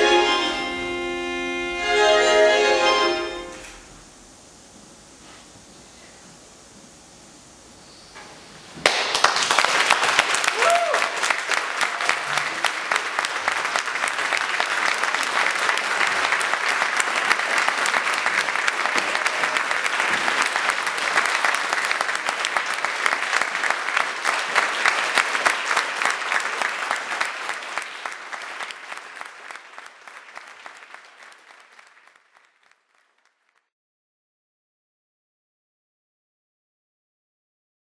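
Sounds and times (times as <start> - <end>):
audience applauding: 8.8 - 33.7.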